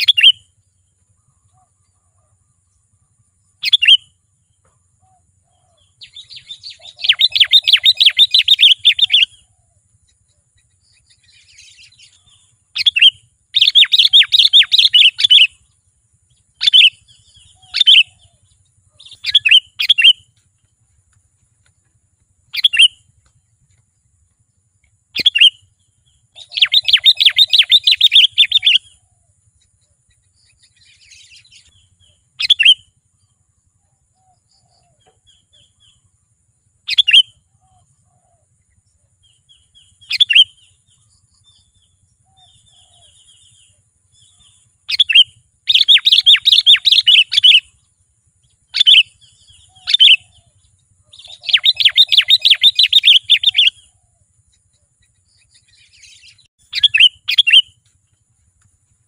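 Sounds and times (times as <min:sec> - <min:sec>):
bird rapid chattering: 0:00.0 - 0:00.4, 0:06.0 - 0:09.3, 0:11.6 - 0:15.5, 0:18.9 - 0:20.2, 0:22.5 - 0:23.0, 0:26.4 - 0:28.8, 0:44.9 - 0:47.7, 0:51.1 - 0:53.8, 0:55.6 - 0:57.7
bird call notes: 0:00.0 - 0:02.3, 0:03.6 - 0:09.7, 0:10.6 - 0:15.7, 0:16.6 - 0:20.4, 0:22.5 - 0:23.2, 0:25.1 - 0:29.2, 0:36.9 - 0:38.4, 0:39.2 - 0:47.8, 0:48.7 - 0:54.2, 0:55.4 - 0:57.8.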